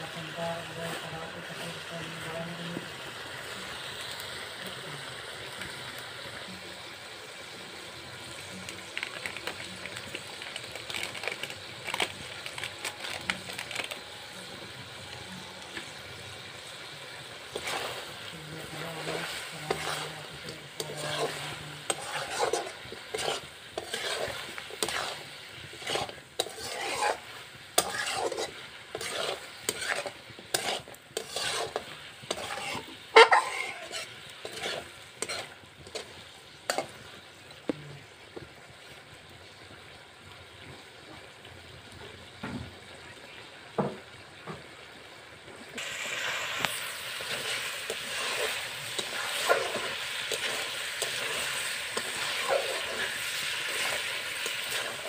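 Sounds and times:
chicken sizzling in a wok: 0:00.0 - 0:55.0
spatula scraping a pan: 0:16.6 - 0:37.6, 0:45.8 - 0:55.0.

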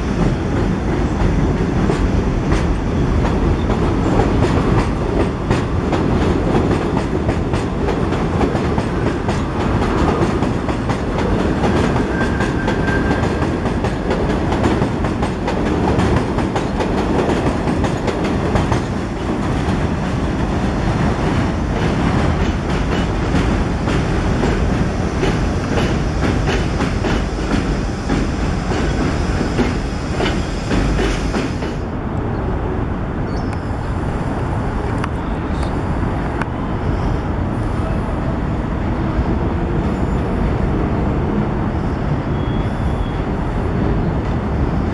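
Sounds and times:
train wheels clattering on track: 0:00.0 - 0:32.0
dull train rumble: 0:00.0 - 0:44.9
train wheel squeal: 0:11.7 - 0:13.5, 0:25.2 - 0:27.9, 0:28.5 - 0:31.8, 0:41.8 - 0:43.4.

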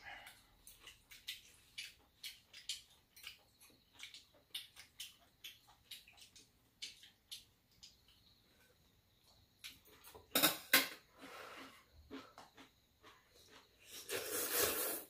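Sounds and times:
people eating with slurps: 0:13.5 - 0:15.0.

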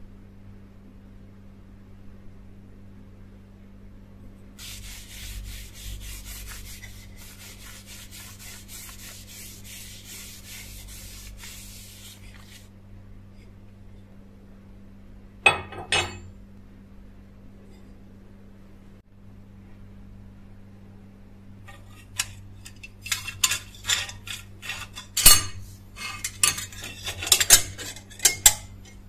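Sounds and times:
steady low hum: 0:00.0 - 0:29.0
paper towel wiping wood: 0:04.6 - 0:12.7.

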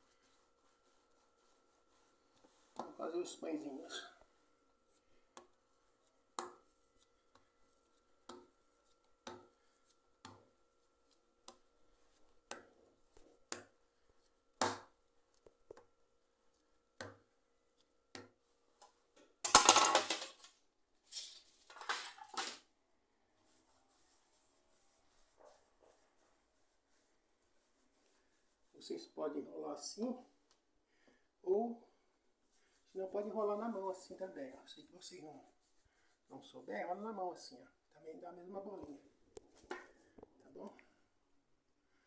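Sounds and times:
soft rustle: 0:23.3 - 0:29.0.

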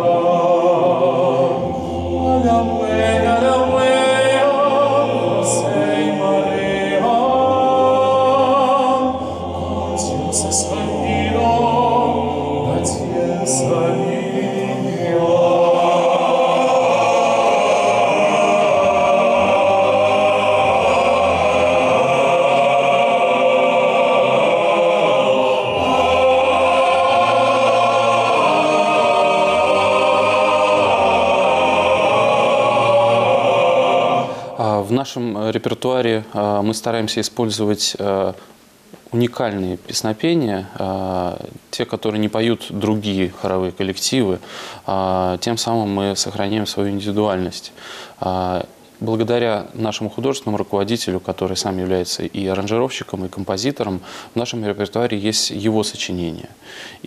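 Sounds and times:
male choir singing a cappella: 0:00.0 - 0:35.0
lead voice with vibrato: 0:00.0 - 0:35.5.

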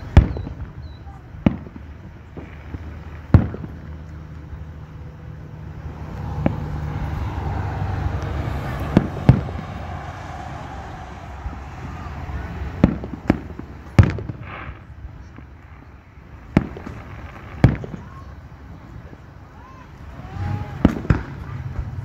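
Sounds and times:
distant firework booms: 0:00.0 - 0:04.0, 0:06.2 - 0:15.6, 0:16.5 - 0:18.2, 0:20.8 - 0:21.4
low rumble: 0:04.6 - 0:15.4.

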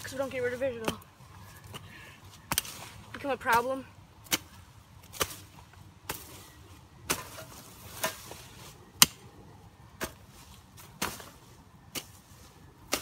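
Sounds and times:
pickaxe striking ground: 0:07.0 - 0:08.4, 0:10.0 - 0:12.2.

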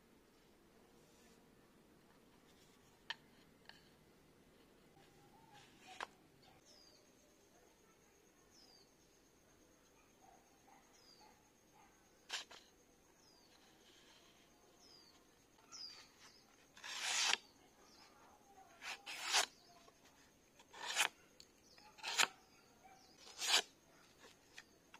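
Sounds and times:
faint bird chirp: 0:04.9 - 0:24.9
blade slicing paper: 0:12.3 - 0:12.7, 0:16.2 - 0:17.4, 0:18.8 - 0:19.6, 0:20.6 - 0:21.2, 0:21.8 - 0:22.4, 0:23.2 - 0:24.3.

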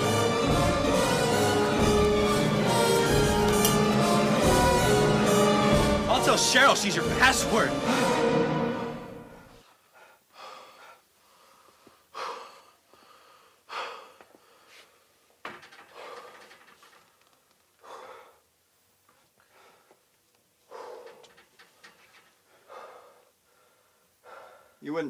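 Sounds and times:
man breathing hard: 0:09.3 - 0:17.1, 0:17.8 - 0:18.6, 0:19.2 - 0:24.8.

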